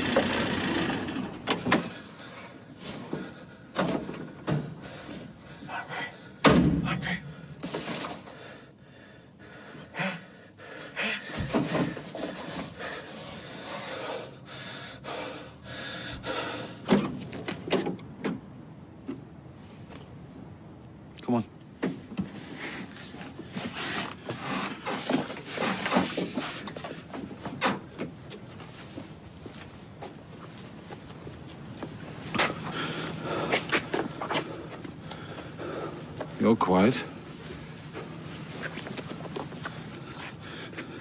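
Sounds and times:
vehicle engine: 0:00.0 - 0:02.3
door slam: 0:06.4 - 0:07.1
van doors opening: 0:16.6 - 0:19.2.

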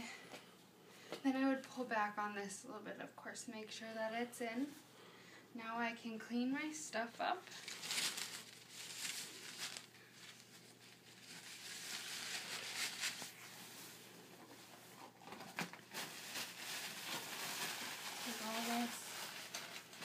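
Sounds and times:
paper drape crinkling: 0:07.5 - 0:14.0, 0:14.6 - 0:20.0.

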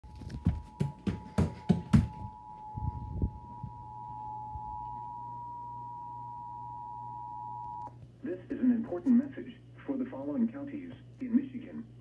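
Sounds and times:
low bumps: 0:00.0 - 0:04.9.

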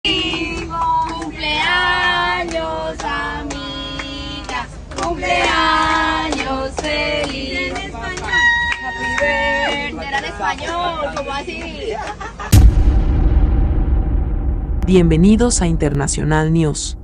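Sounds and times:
group singing a birthday song: 0:00.1 - 0:08.4
hand claps: 0:02.5 - 0:05.6.

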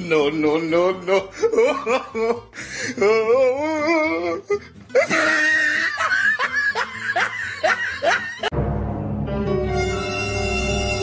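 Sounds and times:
background music: 0:00.0 - 0:11.0
person laughing: 0:01.0 - 0:08.5.

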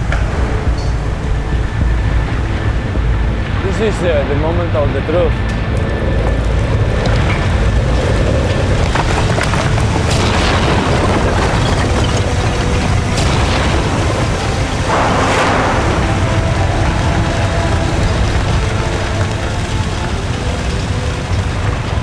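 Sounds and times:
tunnel boring machine deep rumble: 0:00.0 - 0:22.0
falling concrete crashes: 0:06.0 - 0:22.0.

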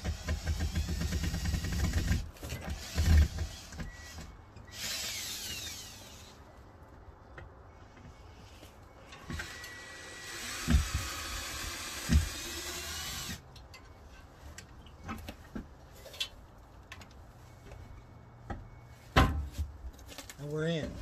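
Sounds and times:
cordless drill whirring: 0:00.1 - 0:06.4, 0:09.3 - 0:13.4.

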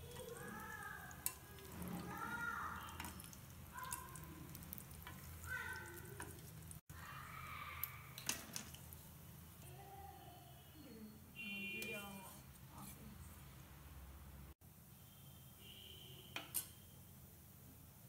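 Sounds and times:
oil sizzling: 0:00.0 - 0:09.8.

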